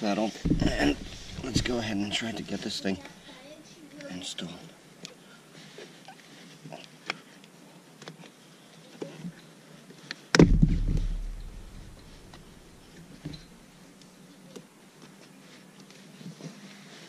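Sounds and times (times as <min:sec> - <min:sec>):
loud booming thump: 0:00.5 - 0:02.0, 0:10.4 - 0:12.8
clicks and rubbing of handling: 0:00.5 - 0:02.4.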